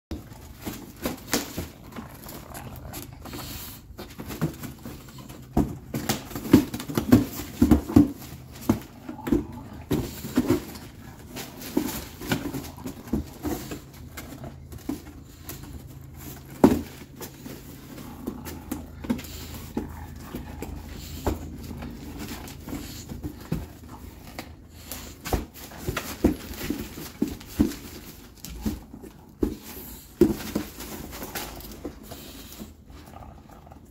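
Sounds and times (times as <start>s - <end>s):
puppy grunting: 0.2s - 24.7s.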